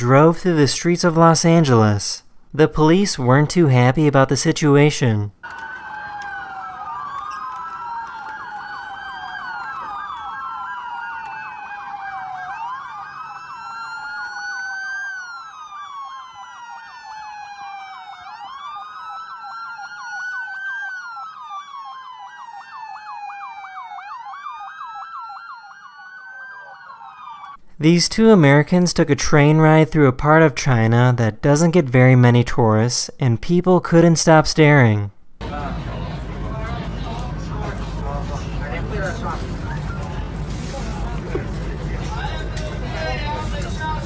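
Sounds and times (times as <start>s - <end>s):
police sirens wailing: 2.9s - 28.0s, 35.4s - 44.0s.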